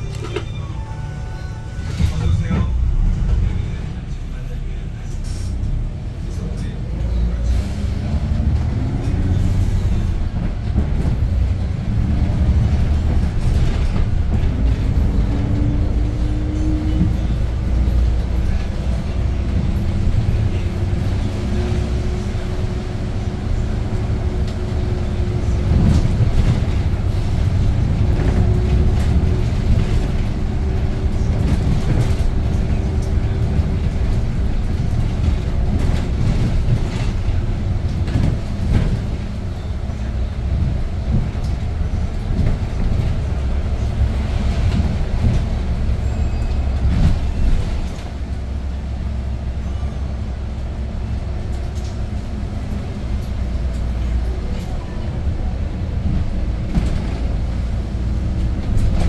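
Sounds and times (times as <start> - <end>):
bus engine drone: 0.0 - 59.0
road noise: 0.0 - 59.0.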